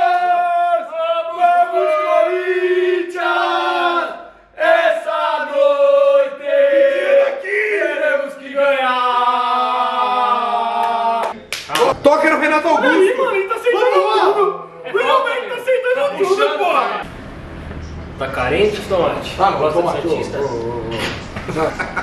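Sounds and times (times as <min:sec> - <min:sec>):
men chanting and singing: 0:00.0 - 0:17.0.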